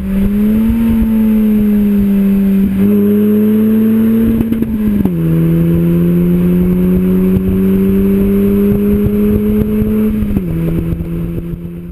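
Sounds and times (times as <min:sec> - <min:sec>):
car exhaust under power: 0:00.0 - 0:11.9.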